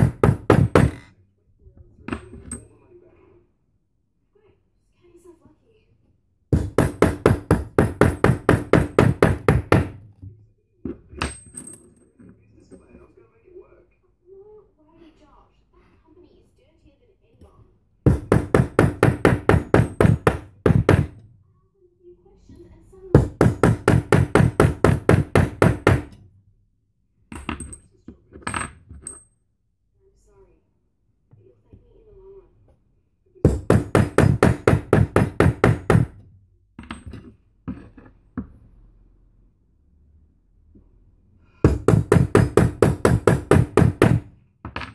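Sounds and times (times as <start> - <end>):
hammer striking metal stamp: 0.0 - 1.0.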